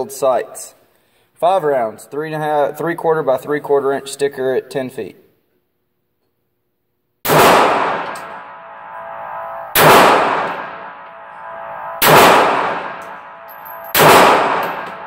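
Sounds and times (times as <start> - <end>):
pistol shots echoing indoors: 7.2 - 15.0.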